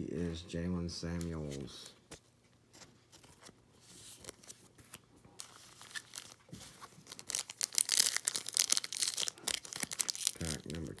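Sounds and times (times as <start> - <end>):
foil wrapper crinkling and tearing: 5.4 - 11.0.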